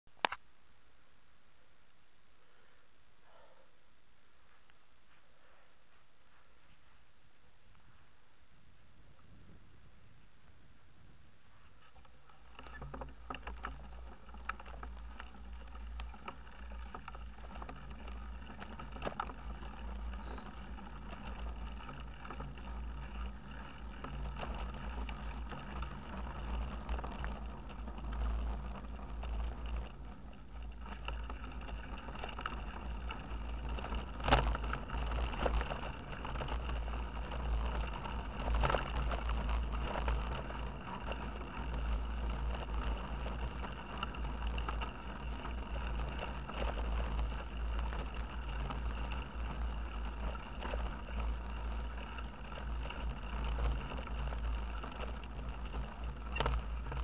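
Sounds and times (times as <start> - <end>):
mountain bike rumbling on gravel: 9.0 - 57.0
bike rattles and knocks: 11.7 - 57.0.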